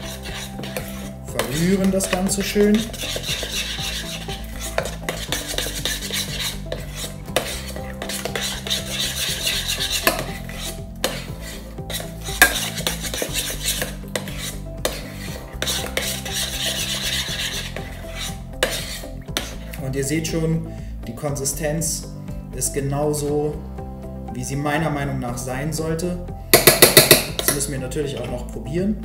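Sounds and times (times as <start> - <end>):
spoon scraping hummus in pot: 0.0 - 19.8.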